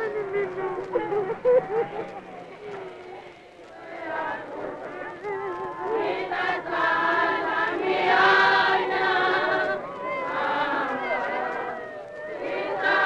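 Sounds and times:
choir singing long held notes: 0.0 - 13.0.

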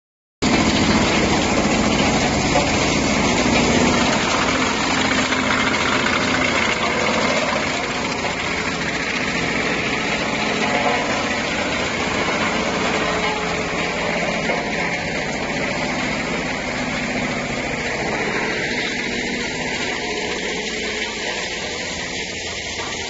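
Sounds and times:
wood chipper chipping branches: 0.4 - 23.0.

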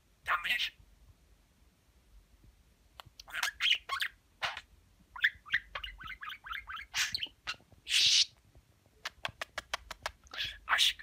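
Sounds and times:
budgerigar chattering: 3.2 - 8.3, 9.1 - 11.0
budgerigar squawk: 3.3 - 8.3.

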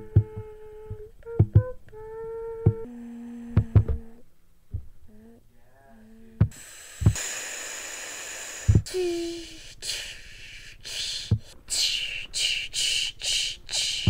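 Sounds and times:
dull handling thumps: 0.0 - 1.8, 3.6 - 5.0
brief low hum: 0.0 - 5.3
person hissing and puffing: 6.4 - 14.0.

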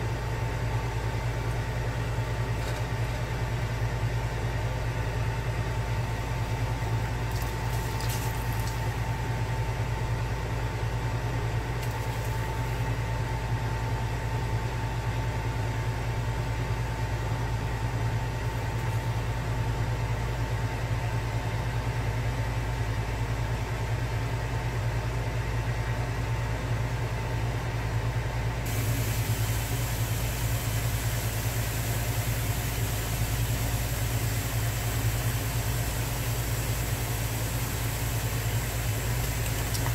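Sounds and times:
low mechanical hum: 0.0 - 39.9
thin steady whine: 27.6 - 39.9
bright hiss: 28.7 - 39.9.

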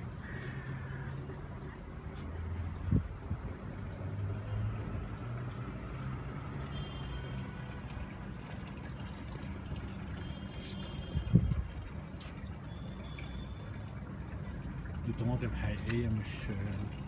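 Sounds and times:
water trickling and pouring: 0.0 - 17.0.

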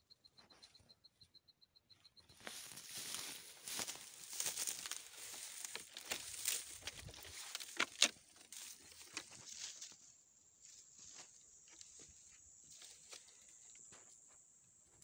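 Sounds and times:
footsteps through dry grass: 2.3 - 14.2.

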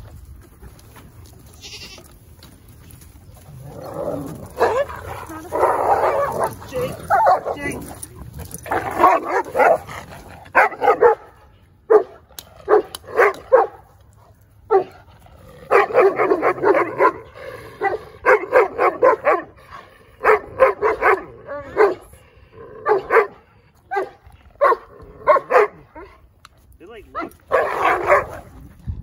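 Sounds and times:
dog barking: 10.5 - 13.8, 14.7 - 14.9, 15.7 - 17.2, 17.8 - 19.5, 20.2 - 22.1, 22.8 - 26.1, 27.2 - 28.4.

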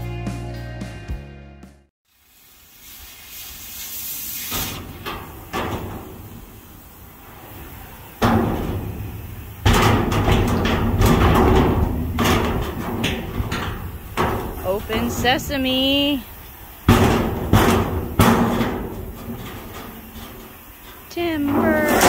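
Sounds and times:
sheet steel banging and rattling: 4.4 - 22.0
metal knocks: 4.7 - 6.9, 8.2 - 22.0.

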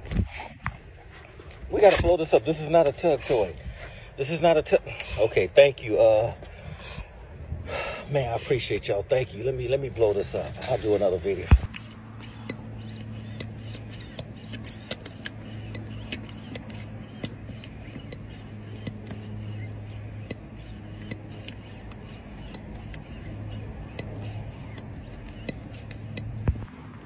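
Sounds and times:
pump clicks: 11.4 - 26.7
electric pump humming: 11.4 - 27.0.

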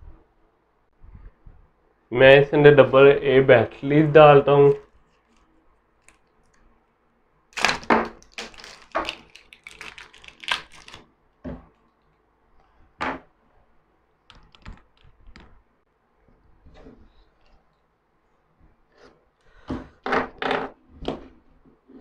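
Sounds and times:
batteries clicking and clattering: 7.6 - 11.0.

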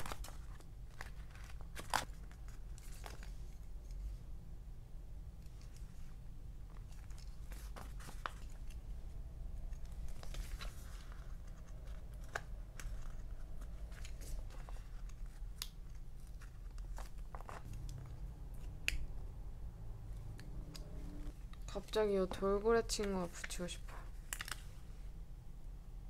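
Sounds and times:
paper rustling: 0.0 - 4.0, 6.8 - 8.8, 9.7 - 18.2
steady low hum: 0.0 - 26.0.

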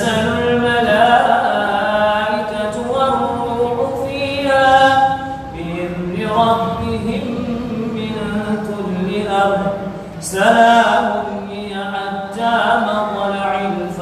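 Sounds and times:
man chanting through a microphone: 0.0 - 14.0.

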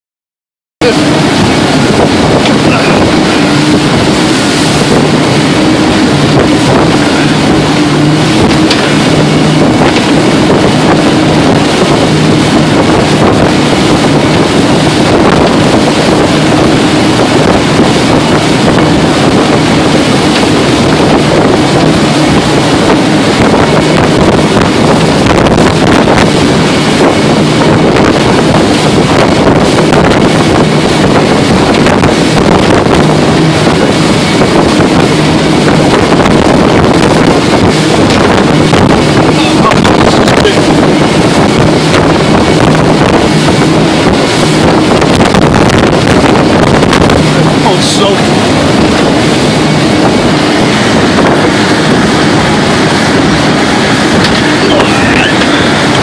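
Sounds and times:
motorboat engine drone: 0.8 - 56.0
spray rushing along hull: 0.8 - 56.0
wind buffeting microphone: 0.8 - 56.0.

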